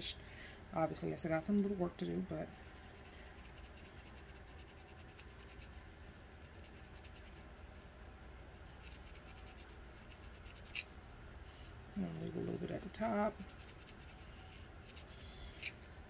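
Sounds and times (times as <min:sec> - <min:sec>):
crochet needle scratching hair: 0:02.5 - 0:07.9, 0:08.5 - 0:11.2, 0:13.0 - 0:16.0.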